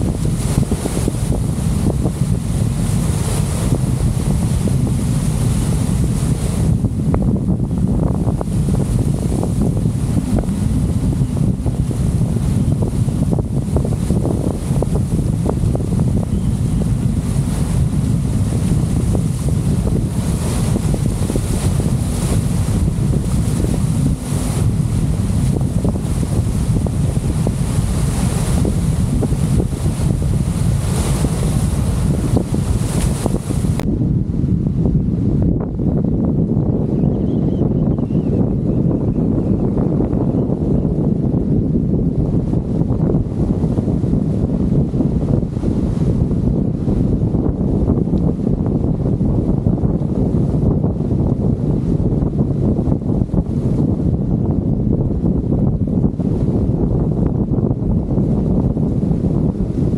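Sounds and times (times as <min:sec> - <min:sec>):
river waves splashing: 0:00.0 - 0:33.8
wind buffeting microphone: 0:00.0 - 0:59.9.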